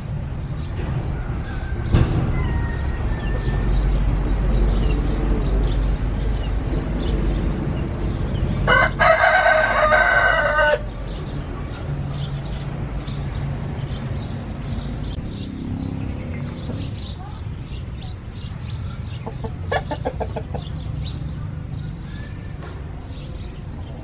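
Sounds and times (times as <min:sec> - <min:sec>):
rooster crowing: 0:01.1 - 0:04.0, 0:08.7 - 0:10.9.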